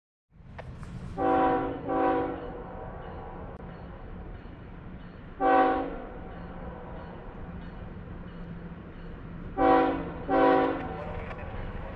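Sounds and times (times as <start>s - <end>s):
distant train rumble: 0.3s - 11.9s
locomotive air horn blasts: 1.2s - 2.4s, 5.4s - 6.0s, 9.6s - 11.0s.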